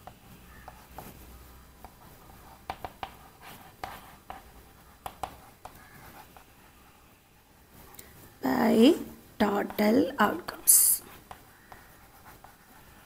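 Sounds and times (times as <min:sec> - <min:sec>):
chalk tapping on board: 0:02.6 - 0:06.4, 0:11.2 - 0:12.6.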